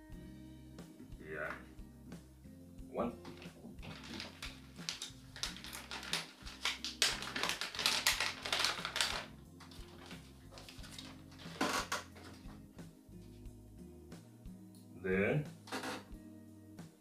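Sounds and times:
quiet background music: 0.0s - 17.0s
packaging crinkling: 3.3s - 12.4s.

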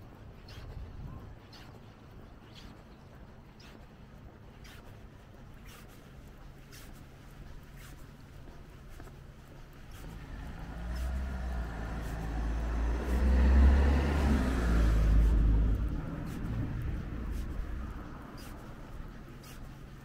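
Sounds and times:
car driving past: 9.9s - 19.2s.

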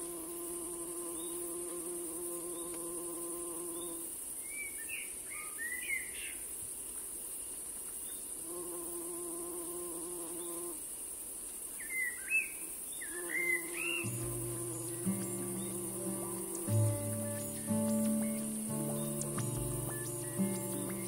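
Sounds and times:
insect buzzing: 0.0s - 4.3s, 8.3s - 11.0s, 13.0s - 21.0s
short chirping bird calls: 13.1s - 21.0s.

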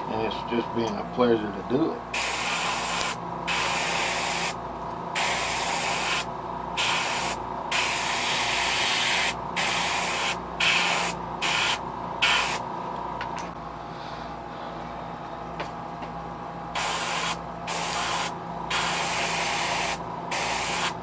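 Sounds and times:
faint steady hum: 0.0s - 21.0s
airbrush hissing in bursts: 2.1s - 4.6s, 5.2s - 12.6s, 16.8s - 21.0s.

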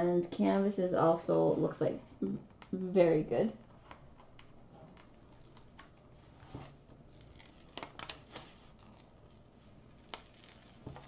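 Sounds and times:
paper sheet peeling and crackling: 3.6s - 11.0s.

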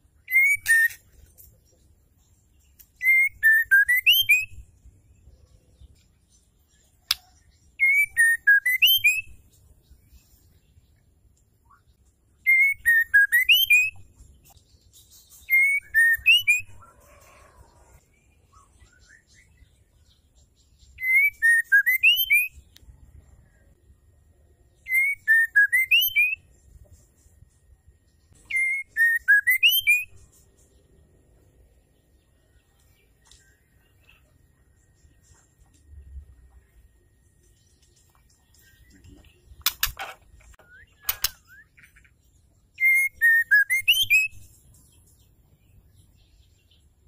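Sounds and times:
bird whistled call: 0.3s - 1.0s, 21.0s - 22.6s, 24.8s - 26.4s, 28.5s - 30.1s, 42.8s - 44.4s.

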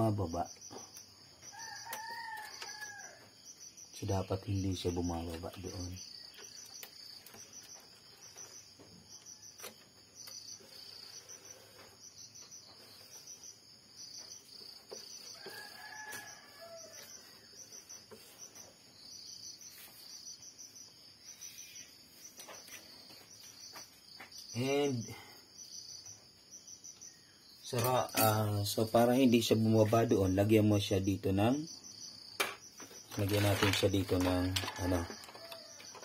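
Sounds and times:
crickets chirping: 0.0s - 36.0s.

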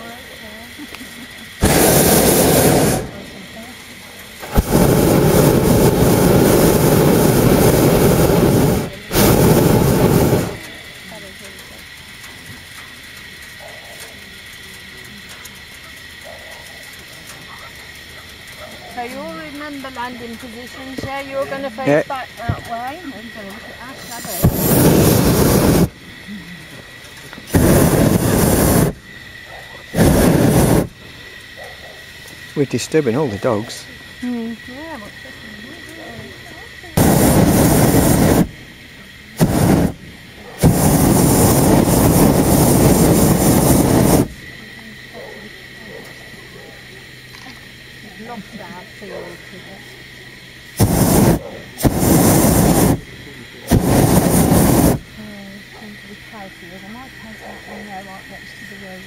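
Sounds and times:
propane burner roaring: 0.0s - 59.0s
faint dog barking: 13.5s - 14.2s, 16.2s - 19.0s, 29.4s - 30.0s, 31.5s - 32.2s, 40.4s - 40.7s, 45.1s - 47.0s, 49.0s - 49.5s, 51.3s - 51.8s, 57.4s - 58.1s.

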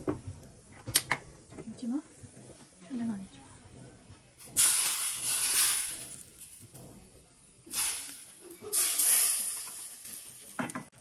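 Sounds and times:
hot oil sizzling: 4.4s - 6.8s, 7.6s - 10.9s.

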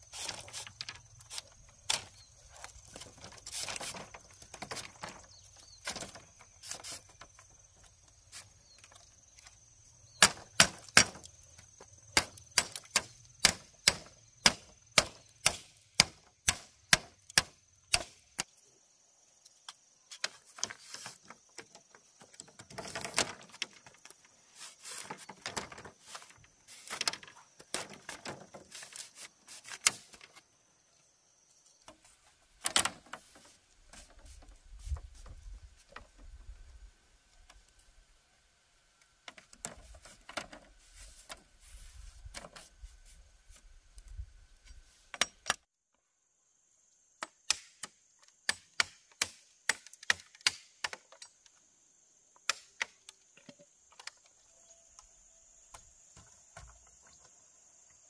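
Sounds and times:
bamboo strips clacking and scraping: 0.0s - 9.6s, 10.2s - 18.5s, 19.5s - 30.5s, 31.8s - 36.4s, 39.2s - 45.7s.

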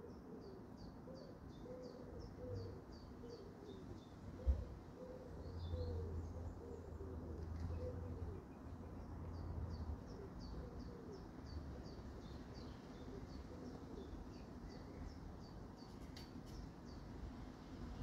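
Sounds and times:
pigeon cooing: 0.0s - 8.5s, 10.2s - 11.3s, 13.0s - 14.2s.

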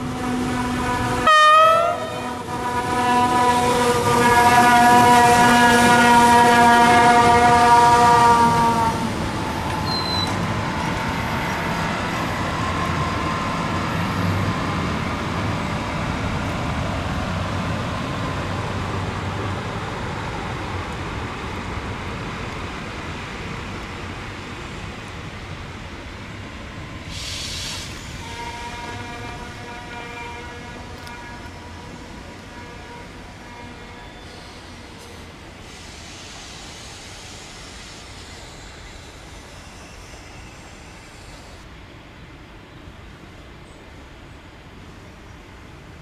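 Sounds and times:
train horn: 0.0s - 11.1s, 27.5s - 35.8s
passing train: 0.0s - 46.0s.

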